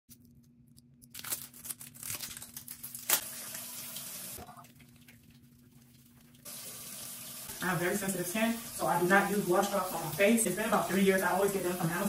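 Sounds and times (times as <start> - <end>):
tap water running into sink: 3.3 - 4.6, 6.5 - 12.0.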